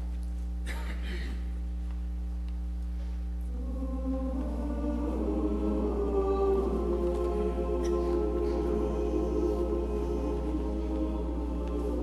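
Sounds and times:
steady low hum: 0:00.0 - 0:12.0
choir singing a cappella: 0:03.5 - 0:12.0.

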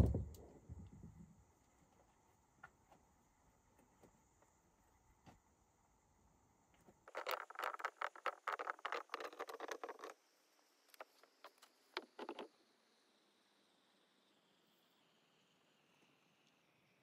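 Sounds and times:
dry brush and stones crackling: 0:07.0 - 0:10.2.

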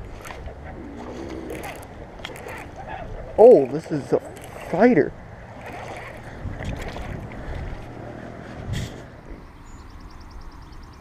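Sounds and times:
wind on microphone: 0:00.0 - 0:09.7
fishing reel ticking: 0:01.4 - 0:02.8, 0:03.7 - 0:05.0.

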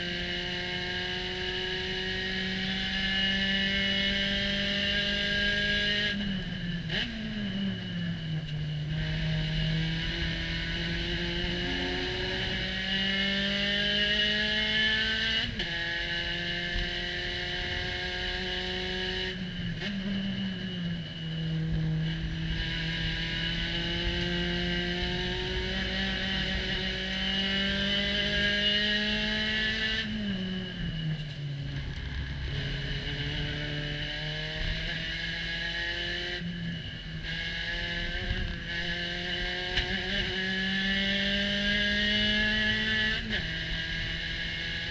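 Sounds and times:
race car engine at full throttle: 0:00.0 - 0:44.9.

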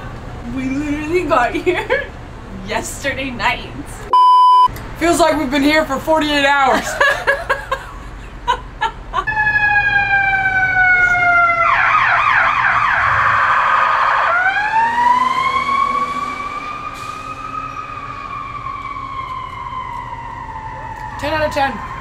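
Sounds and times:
emergency siren wailing and yelping: 0:09.2 - 0:22.0.

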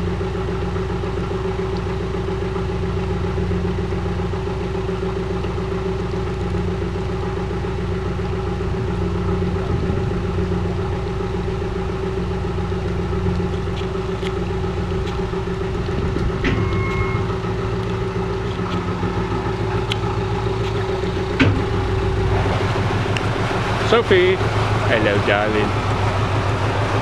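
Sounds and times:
boat engine idling: 0:00.0 - 0:27.0.

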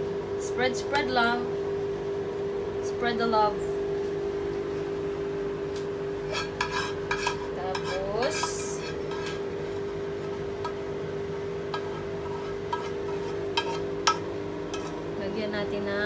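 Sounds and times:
steady hum: 0:00.0 - 0:16.0
metal spatula scraping pan: 0:06.2 - 0:09.5, 0:11.7 - 0:15.0.

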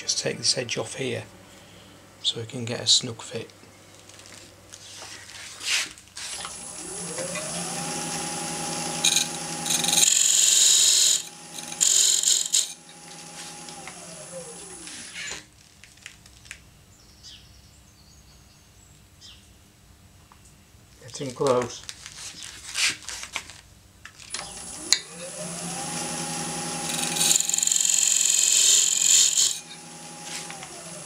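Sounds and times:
tool cutting wood with hiss: 0:05.7 - 0:15.4, 0:24.4 - 0:31.0
lathe motor whine: 0:06.4 - 0:15.4, 0:24.3 - 0:31.0.

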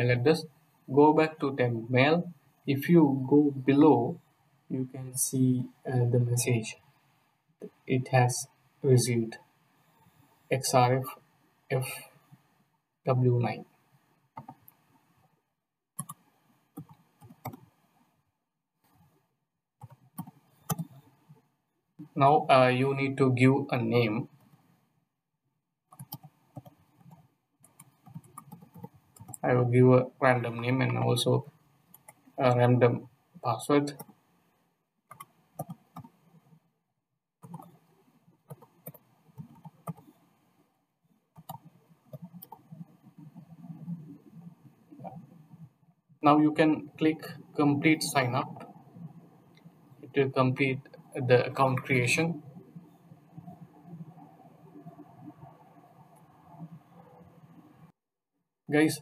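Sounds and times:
keyboard keys clicking: 0:19.8 - 0:21.0.

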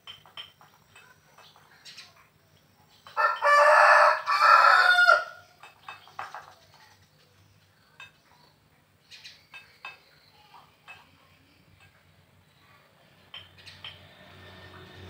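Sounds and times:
rooster crowing: 0:03.2 - 0:05.4.

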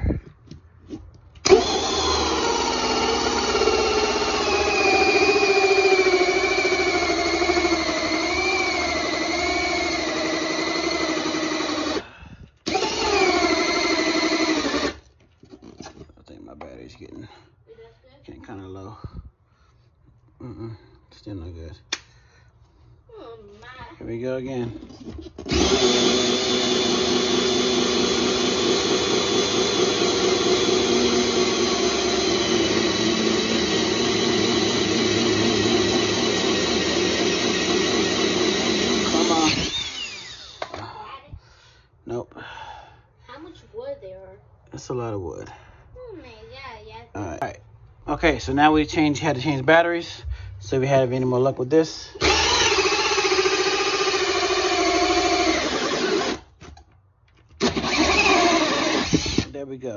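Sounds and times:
cordless drill cutting with hole saw: 0:01.4 - 0:15.6, 0:25.3 - 0:41.0, 0:52.2 - 0:56.6, 0:57.6 - 0:59.6.

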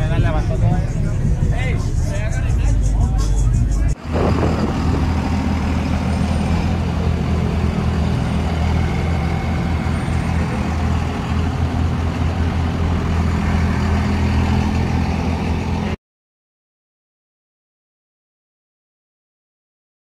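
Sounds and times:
pickup truck engines rumbling: 0:00.0 - 0:16.0.

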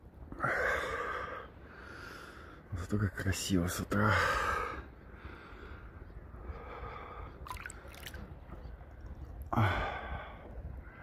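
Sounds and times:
wind and water rumble: 0:00.0 - 0:11.0
water splashing and dripping: 0:07.4 - 0:09.2.

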